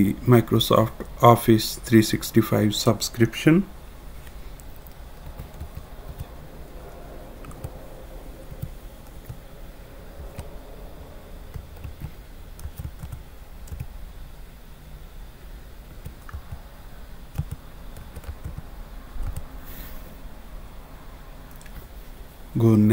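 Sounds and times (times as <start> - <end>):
steady low hum: 0.0 - 22.9
keyboard typing clicks: 4.6 - 6.3, 11.5 - 13.9, 15.9 - 16.6, 17.3 - 18.6, 19.2 - 19.5.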